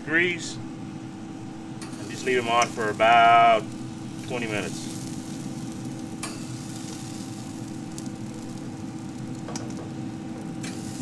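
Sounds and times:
faint hum: 0.0 - 11.0
chicken wings hissing on grill: 1.9 - 9.5, 10.2 - 11.0.

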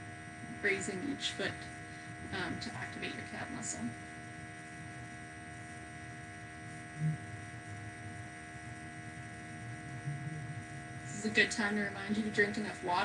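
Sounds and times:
electrical mains hum: 0.0 - 13.0.

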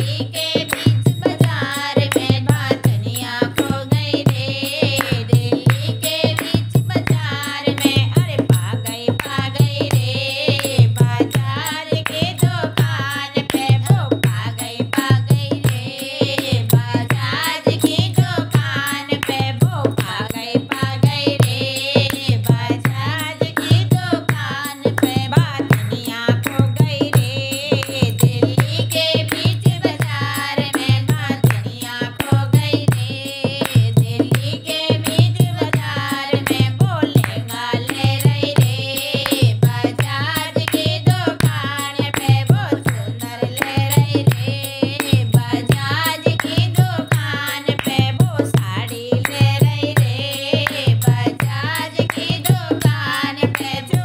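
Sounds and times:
steady drum beat: 0.0 - 54.0.

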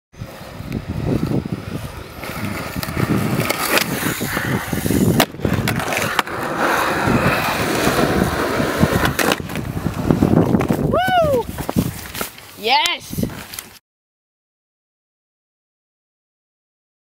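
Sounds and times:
skateboard wheels rolling on asphalt: 0.1 - 13.8
skateboard clacking on pavement: 2.1 - 10.9.

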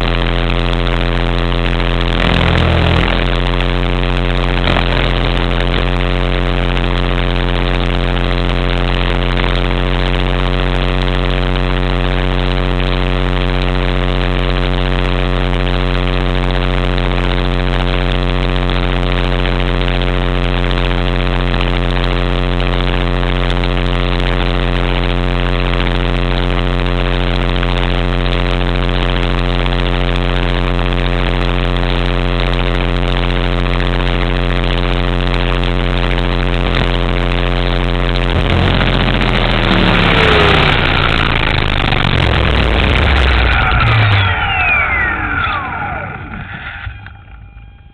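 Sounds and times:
model helicopter motor whine: 2.2 - 3.3.

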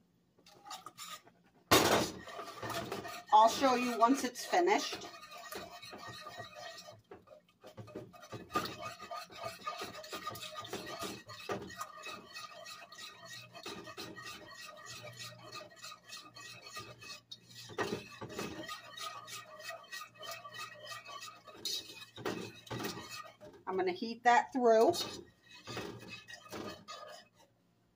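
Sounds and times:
whisk scraping a saucepan: 0.4 - 27.6.

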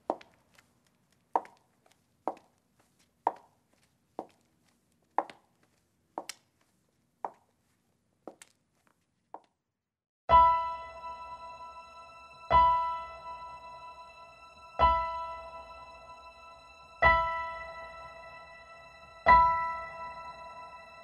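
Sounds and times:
shoes clicking on pavement: 0.0 - 9.5
sustained piano chord: 10.3 - 21.0.

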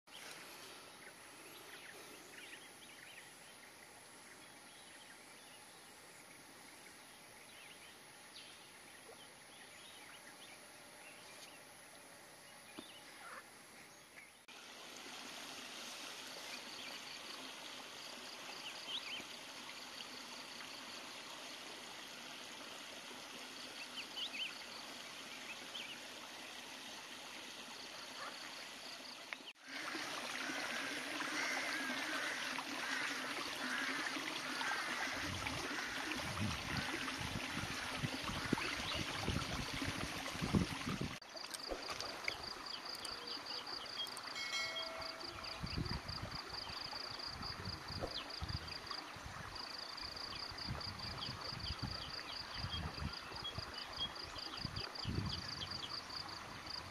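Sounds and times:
water pouring into pool: 29.6 - 44.4.

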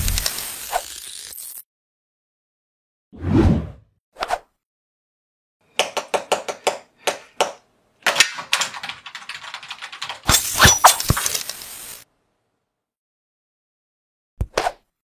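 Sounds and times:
sharp clicks and taps: 5.8 - 10.4.

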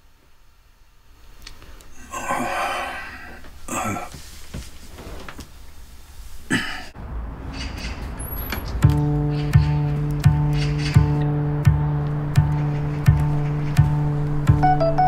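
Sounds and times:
old man coughing: 3.7 - 4.2, 6.5 - 7.0.

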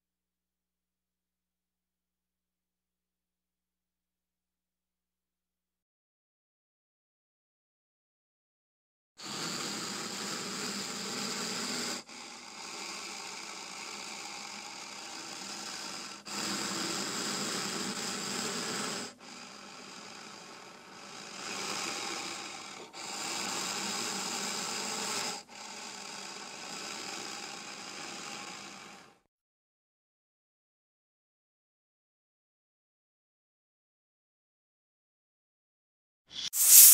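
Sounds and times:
snake hissing: 9.2 - 29.2, 36.3 - 36.9.

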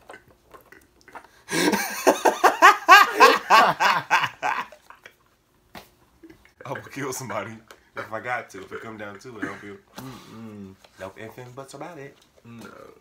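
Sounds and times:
men laughing: 1.5 - 4.8.

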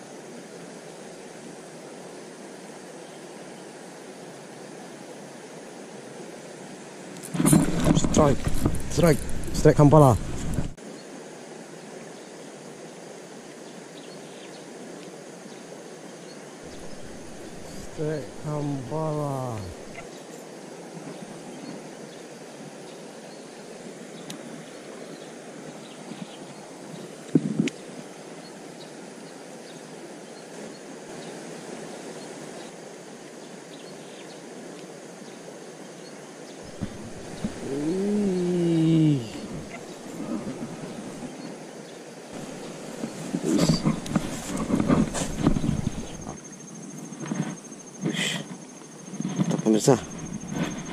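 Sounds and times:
river rushing: 0.0 - 14.0, 14.7 - 46.5
fast-flowing stream rushing: 7.2 - 10.8, 16.6 - 20.0, 36.7 - 46.4.

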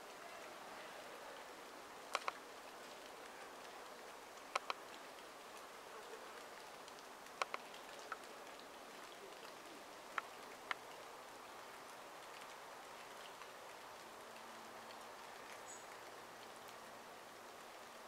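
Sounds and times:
faint outdoor hiss: 0.0 - 18.0
sharp short clicks: 2.1 - 2.4, 4.5 - 4.8.

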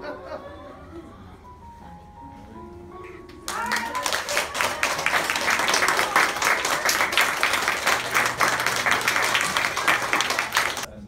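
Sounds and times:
children clapping: 3.3 - 10.9.

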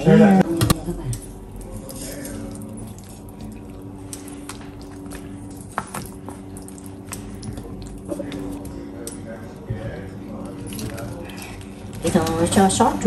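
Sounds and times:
steady hum: 0.0 - 13.0
broth simmering in a pot: 1.4 - 9.0.

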